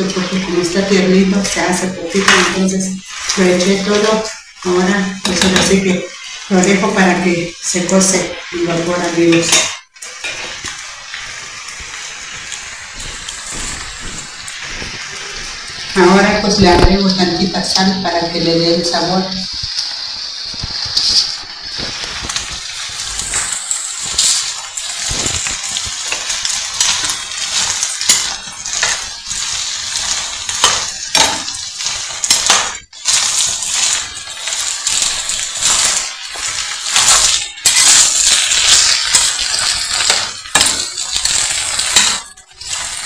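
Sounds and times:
food sizzling: 0.0 - 43.0
spoon scraping and knocking pot: 5.2 - 5.9.

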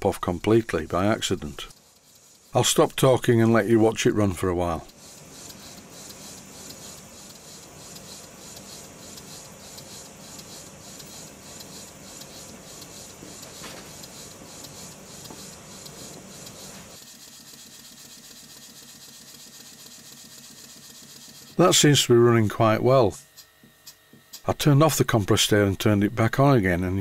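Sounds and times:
light mechanical clatter: 4.9 - 21.6
model engine exhaust puffs: 4.9 - 21.6.

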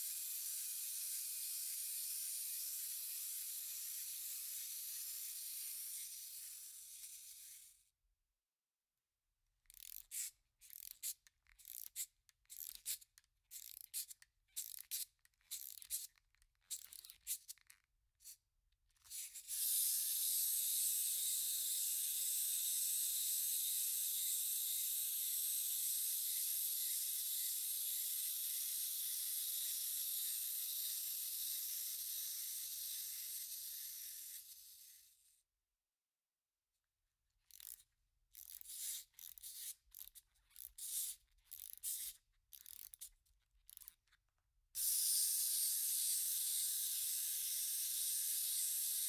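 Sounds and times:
clockwork motor whirring: 0.0 - 7.8, 9.7 - 17.8, 19.0 - 35.2, 37.5 - 37.8, 38.4 - 43.1, 44.8 - 49.0
wind-up key rasping: 9.7 - 17.8, 37.5 - 44.2.

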